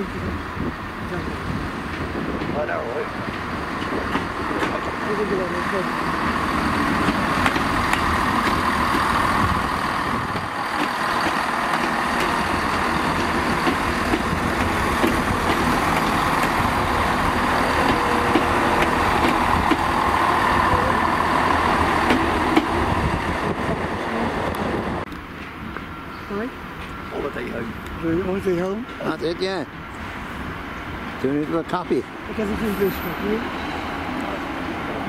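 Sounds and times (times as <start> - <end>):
train engine drone: 0.0 - 35.0
wheel-on-rail noise: 0.1 - 35.0
wheels clicking over rail joints: 3.2 - 16.6, 17.2 - 20.3.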